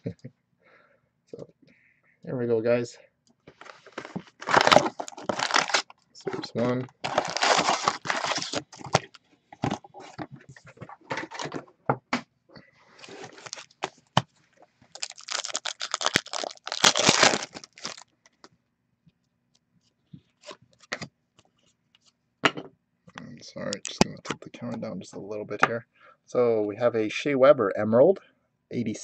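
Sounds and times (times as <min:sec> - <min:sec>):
card packs clicking and scraping: 0:03.6 - 0:09.8, 0:13.0 - 0:14.0, 0:15.0 - 0:18.0
foil wrapper tearing and crinkling: 0:04.4 - 0:05.9, 0:07.0 - 0:09.2, 0:13.0 - 0:13.9, 0:15.0 - 0:18.1.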